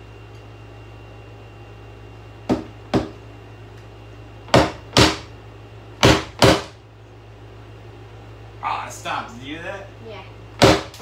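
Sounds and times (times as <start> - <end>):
sharp knocks on plastic: 2.5 - 3.2, 4.5 - 5.3, 6.0 - 6.8, 10.6 - 11.0.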